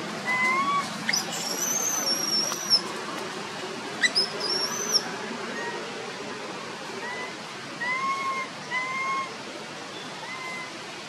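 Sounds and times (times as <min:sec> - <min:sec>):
baby monkey squealing cries: 0:00.3 - 0:02.8, 0:04.0 - 0:05.0.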